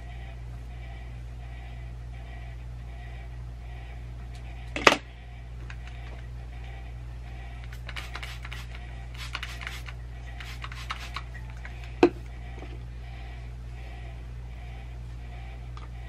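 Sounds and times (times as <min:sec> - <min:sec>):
spray bottle spritzing: 0:07.7 - 0:11.3.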